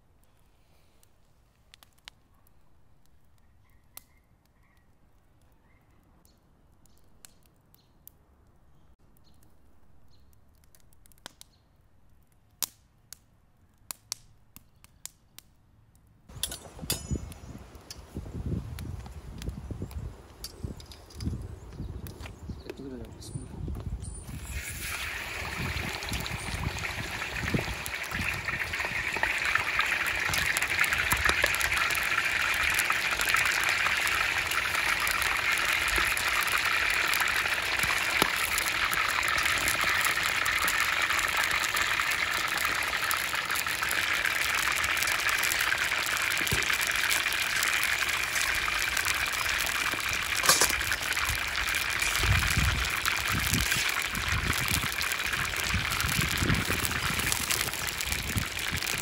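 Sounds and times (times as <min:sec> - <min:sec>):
chicken deep-frying in oil: 0:23.6 - 0:59.0.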